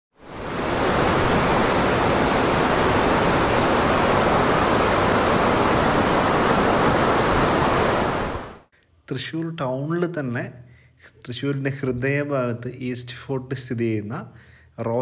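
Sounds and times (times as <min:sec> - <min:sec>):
loud steady hiss: 0:00.2 - 0:08.7.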